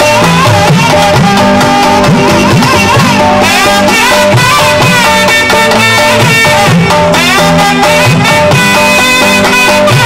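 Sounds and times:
electric bass guitar: 0.0s - 10.0s
keyboard: 0.0s - 10.0s
nadhaswarams playing melody: 0.0s - 10.0s
tabla: 0.0s - 10.0s
thavil drum: 0.0s - 10.0s.

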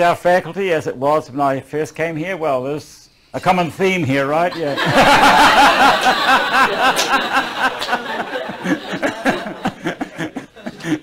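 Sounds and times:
audience laughing: 4.5s - 11.0s.

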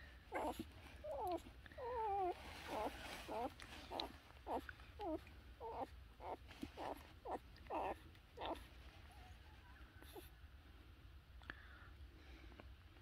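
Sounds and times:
puppies whimpering: 0.3s - 8.7s.

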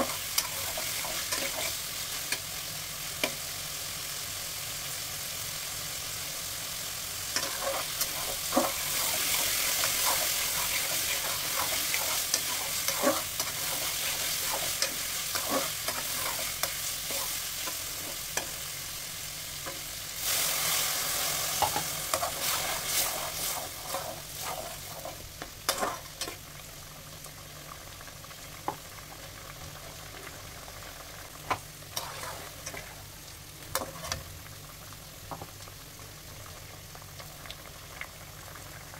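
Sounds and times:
spatula scraping wok: 0.0s - 2.4s, 7.4s - 18.8s, 19.6s - 26.4s, 31.9s - 33.0s, 33.7s - 34.3s
vegetables sizzling in oil: 0.0s - 38.9s.

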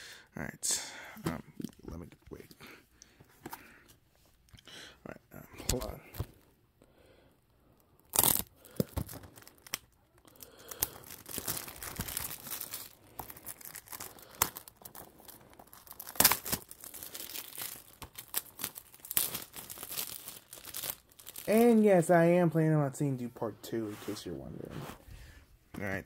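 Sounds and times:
plastic wrap crackling and rustling: 8.0s - 22.2s
plastic wrap ripping: 8.1s - 21.9s.

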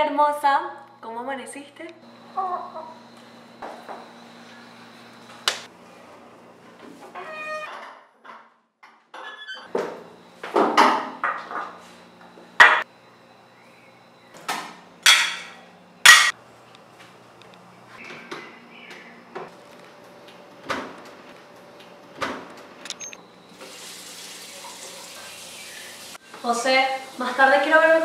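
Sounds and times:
plates and cutlery clinking: 15.1s - 16.3s.

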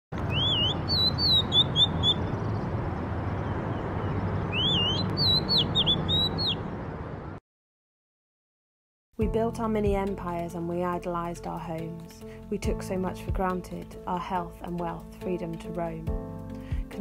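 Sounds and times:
bird singing whistled notes: 0.3s - 2.7s, 3.3s - 6.6s.

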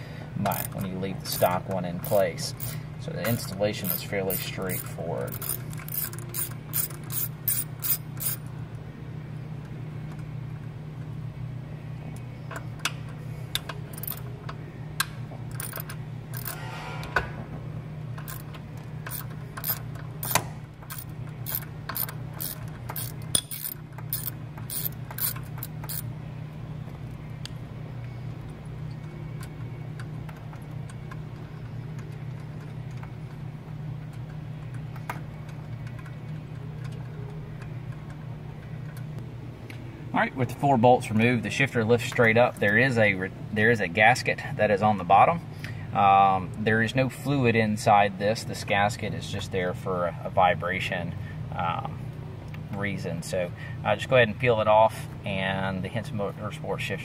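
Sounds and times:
steady low hum: 0.0s - 57.0s
hand ratchet clicking: 0.4s - 8.4s, 13.9s - 14.2s, 15.5s - 16.6s, 18.2s - 26.0s.

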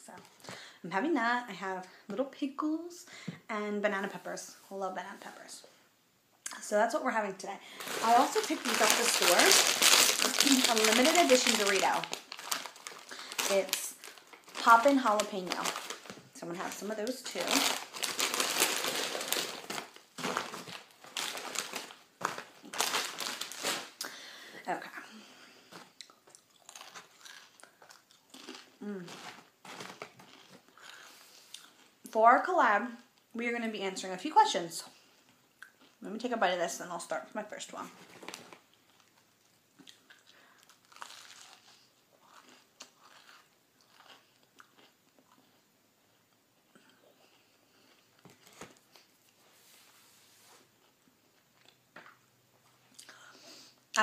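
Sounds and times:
chip bag crinkling: 7.7s - 24.2s, 26.0s - 31.9s, 37.9s - 45.4s
biting and chewing sandwich: 25.8s - 30.9s, 39.8s - 45.6s.

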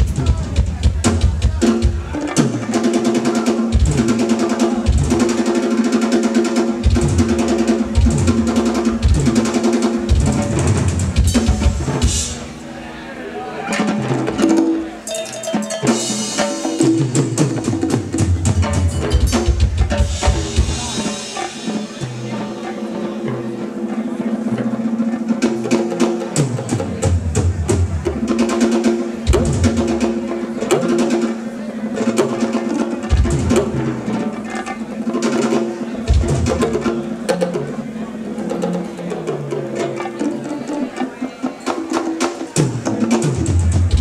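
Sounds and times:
live drum kit and percussion: 0.0s - 44.0s
cymbals crashing: 13.7s - 24.6s.

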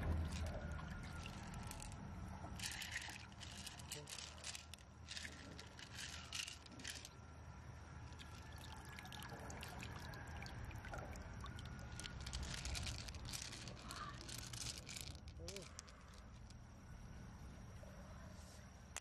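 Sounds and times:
running water trickling: 0.0s - 1.9s, 8.0s - 14.5s
pearls clicking together: 0.2s - 7.2s, 11.4s - 16.6s.

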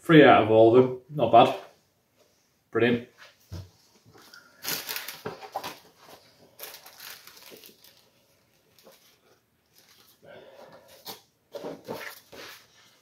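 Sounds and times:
rustling and crinkling: 3.2s - 13.0s.

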